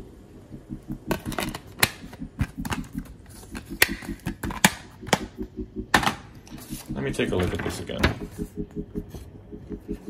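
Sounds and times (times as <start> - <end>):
plastic cases clicking: 1.1 - 5.3.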